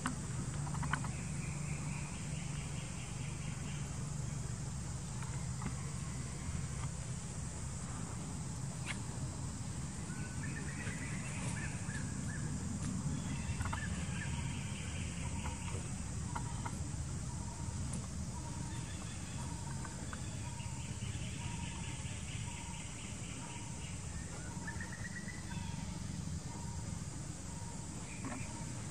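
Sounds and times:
insect drone: 0:00.0 - 0:28.9
birds chirping: 0:07.4 - 0:28.9.

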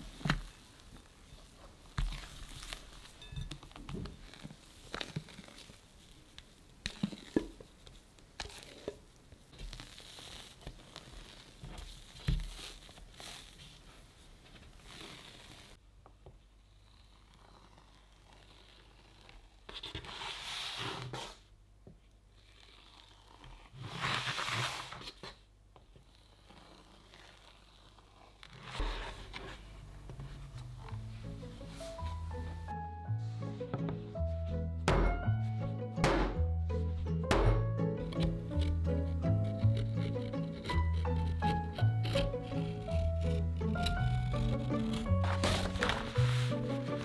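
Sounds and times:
scraper swishing across batter: 0:08.0 - 0:15.8, 0:38.4 - 0:47.0
clicks knocks and scrapes: 0:37.2 - 0:47.0.

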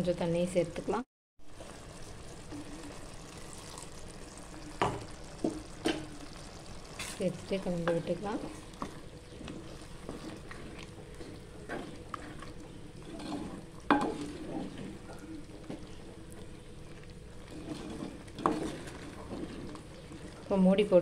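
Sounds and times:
spatula scraping pot: 0:07.0 - 0:20.6.

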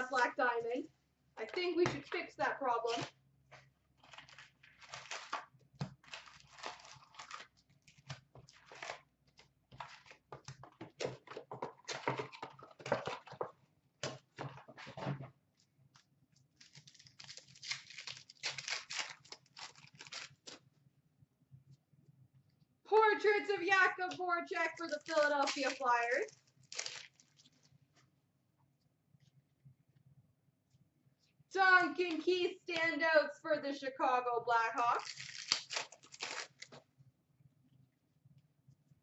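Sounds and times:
wrappers tearing and crinkling: 0:04.0 - 0:09.1, 0:16.6 - 0:20.6, 0:24.5 - 0:27.7, 0:34.9 - 0:36.8.

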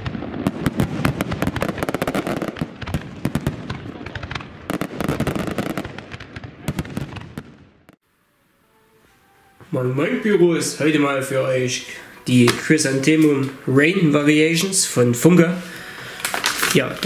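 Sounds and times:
firework crackling: 0:00.0 - 0:08.0, 0:09.1 - 0:17.0
firework shells bursting: 0:00.0 - 0:08.0, 0:16.2 - 0:17.0.

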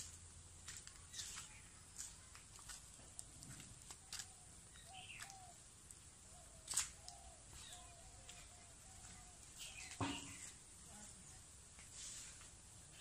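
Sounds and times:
birds calling: 0:01.0 - 0:02.4, 0:03.0 - 0:11.4.

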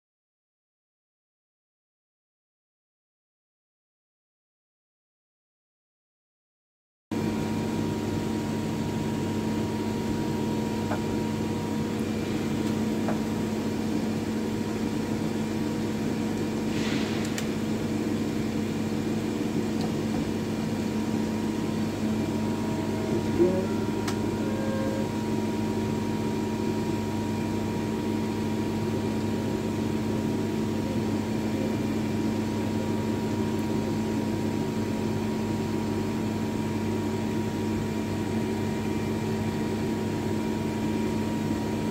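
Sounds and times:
brief hiss: 0:16.7 - 0:17.3
lathe humming: 0:17.6 - 0:36.0.

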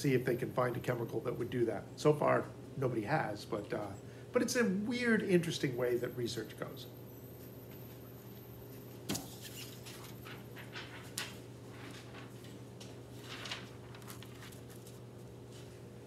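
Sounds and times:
steady low hum: 0:00.0 - 0:16.0
sheets rustling and scraping: 0:09.2 - 0:15.8.

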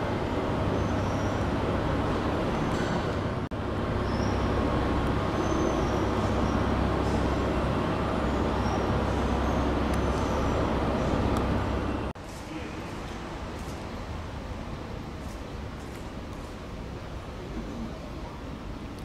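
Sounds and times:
high train squeals: 0:00.0 - 0:12.1
train rumbling: 0:00.0 - 0:12.2.

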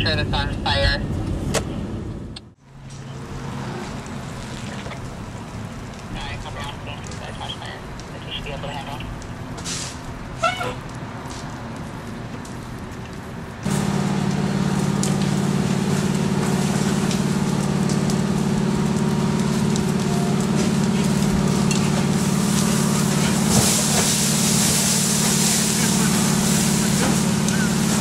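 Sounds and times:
truck engine droning: 0:00.0 - 0:28.0
hiss: 0:22.5 - 0:28.0.

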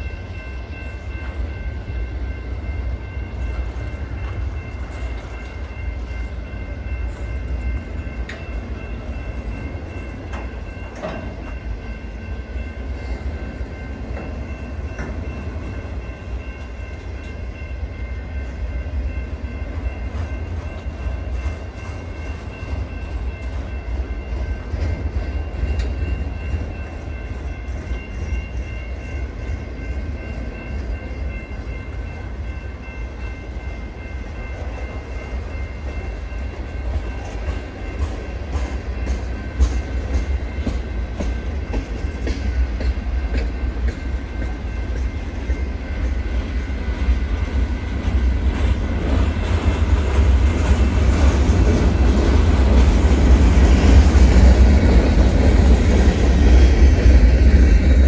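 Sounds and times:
freight train wheels rumbling: 0:00.0 - 0:58.0
wheels clicking over rail joints: 0:09.4 - 0:11.6.

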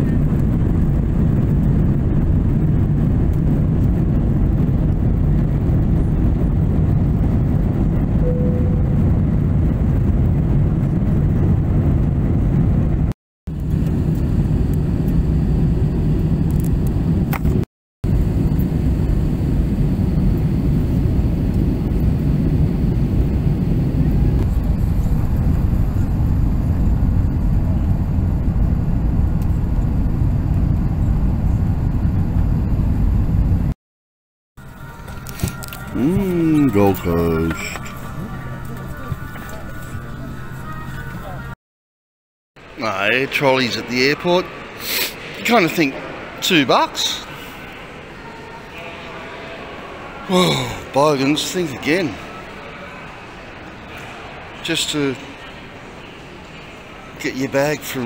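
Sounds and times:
airliner cabin engine rumble: 0:00.0 - 0:33.8, 0:34.7 - 0:41.6.

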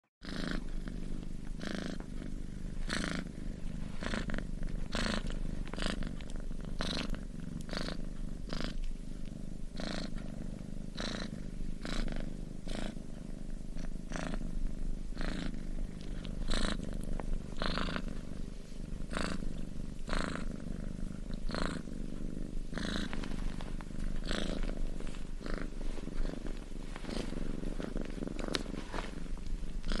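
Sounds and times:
cat purring: 0:00.2 - 0:30.0.

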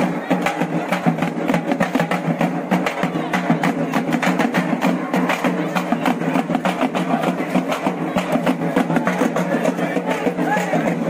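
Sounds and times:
crowd chatter: 0:00.0 - 0:11.0
street drums beaten fast: 0:00.0 - 0:11.0.

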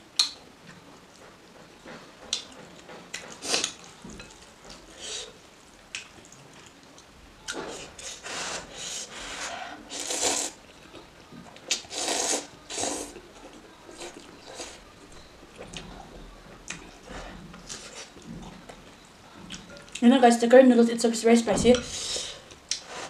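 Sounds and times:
small eating noises: 0:00.0 - 0:23.0
person slurping noodles: 0:08.0 - 0:10.6, 0:11.9 - 0:13.1.

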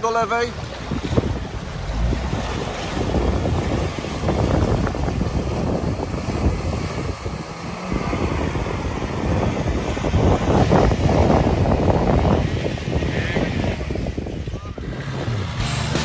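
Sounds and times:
water churning and splashing: 0:00.0 - 0:16.0
wind buffeting microphone: 0:00.0 - 0:16.0
car engine running: 0:14.8 - 0:16.0.

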